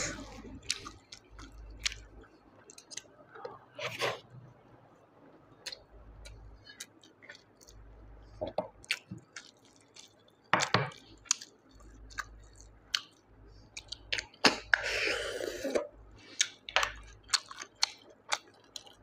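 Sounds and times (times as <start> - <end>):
wet chewing: 0.0 - 3.1, 8.8 - 14.8, 16.2 - 19.0.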